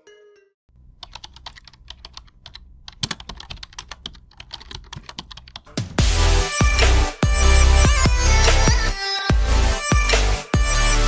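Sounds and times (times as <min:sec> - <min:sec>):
computer keyboard typing: 0:00.8 - 0:05.8.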